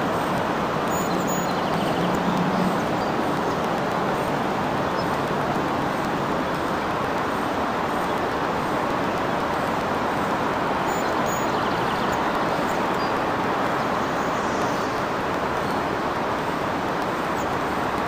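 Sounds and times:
distant road traffic: 0.0 - 18.0.

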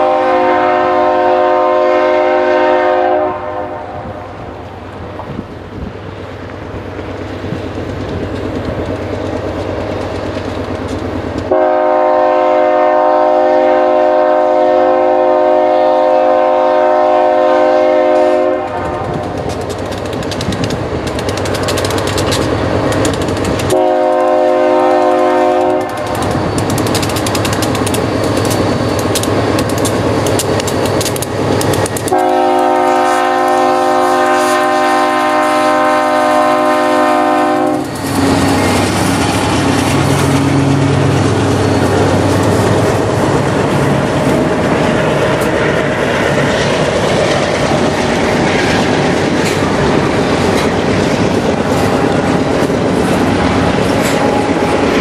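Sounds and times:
locomotive horn blasts: 0.0 - 4.2, 11.5 - 19.2, 23.7 - 26.3, 32.1 - 38.4
locomotive engines rumbling: 0.0 - 55.0.

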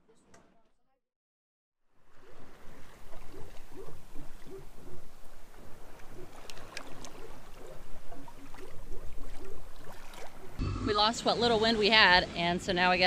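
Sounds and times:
water splashing along a hull: 2.0 - 13.0.

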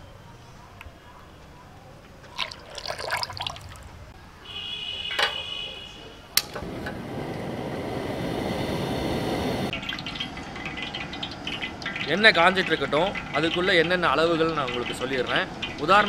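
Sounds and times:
oil pouring and splashing: 2.2 - 4.0, 9.7 - 16.0
gas flame rushing: 6.4 - 9.7
gas hissing: 6.4 - 9.7.

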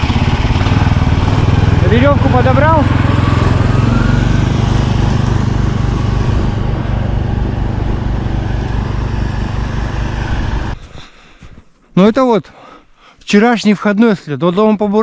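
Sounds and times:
snowmobile engine running: 0.0 - 10.8.

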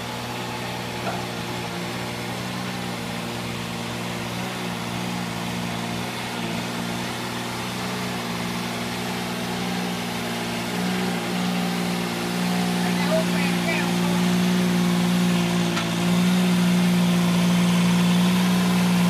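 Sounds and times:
rotary tiller churning: 0.0 - 19.0
tractor engine humming: 0.0 - 19.0.

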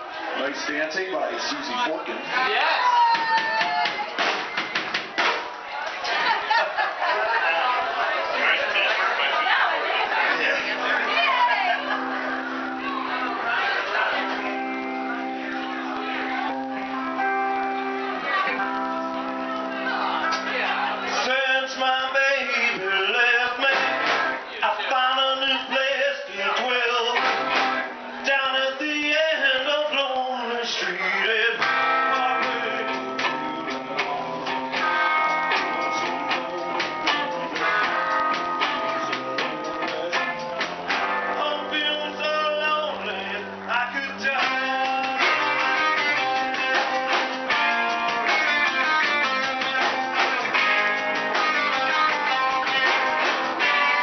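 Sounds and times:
rock band playing: 2.4 - 6.5, 9.8 - 29.7, 30.6 - 54.0
drums with driving beat: 2.9 - 5.7, 23.6 - 24.5, 27.1 - 28.0, 31.6 - 41.4, 44.3 - 54.0
bass guitar: 8.6 - 54.0
electric guitars strumming: 8.7 - 54.0
man singing lead vocal: 20.8 - 46.8, 48.5 - 51.0.

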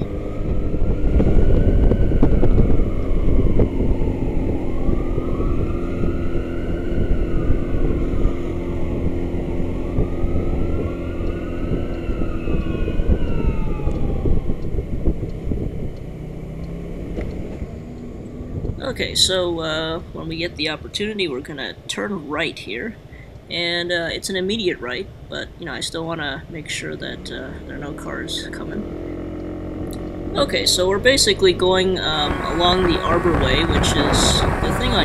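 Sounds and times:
emergency siren wailing: 0.0 - 18.9, 30.1 - 35.0
road noise: 0.0 - 35.0.

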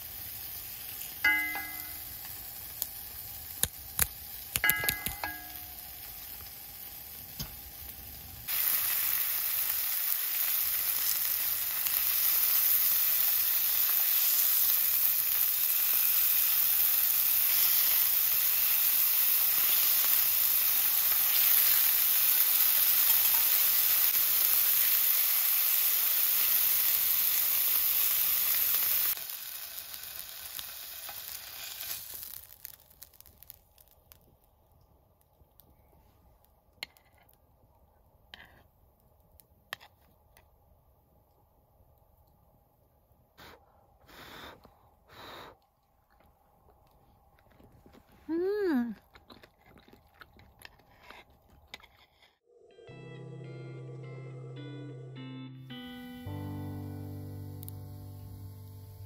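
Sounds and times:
beef sizzling in frying pan: 0.0 - 34.2
chopsticks clinking on pan: 1.2 - 2.0, 4.6 - 5.8.

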